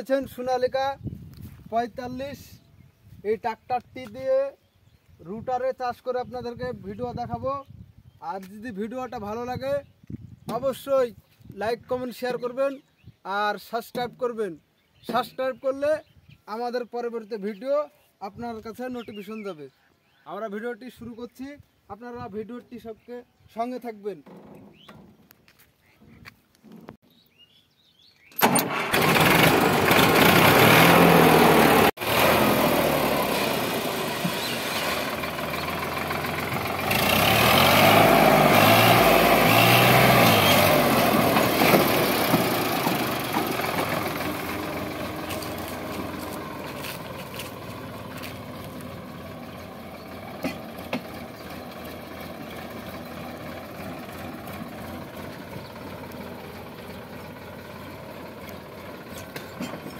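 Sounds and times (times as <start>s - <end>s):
tractor diesel engine running: 28.3s - 59.9s.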